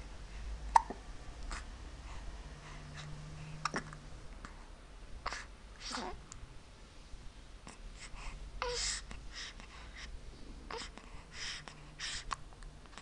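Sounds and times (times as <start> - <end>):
soft breathy noises: 0.0 - 13.0.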